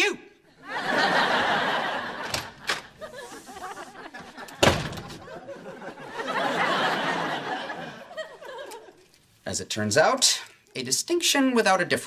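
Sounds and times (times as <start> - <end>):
audience laughing: 0.6 - 9.1
door slamming: 2.2 - 3.1, 4.4 - 5.5.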